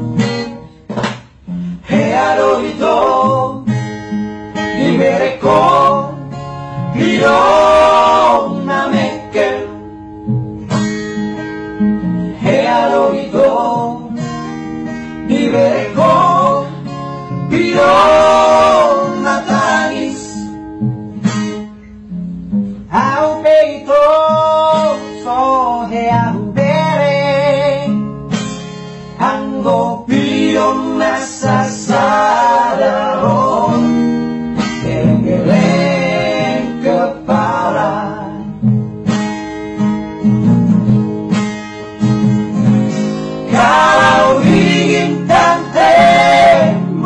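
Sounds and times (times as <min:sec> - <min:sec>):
acoustic guitar: 0:00.0 - 0:47.0
vocal trio singing: 0:01.7 - 0:03.8, 0:04.6 - 0:10.0, 0:12.2 - 0:14.4, 0:15.0 - 0:20.6, 0:22.9 - 0:27.7, 0:29.2 - 0:38.6, 0:43.4 - 0:47.0.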